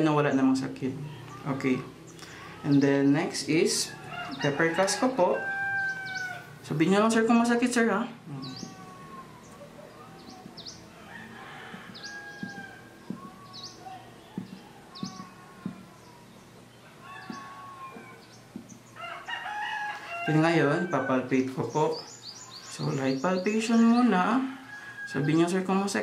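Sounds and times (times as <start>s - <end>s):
bird calls and chirps: 5.5s - 6.6s, 8.3s - 25.3s
soft taps on abdomen: 11.7s - 13.5s, 14.3s - 15.9s.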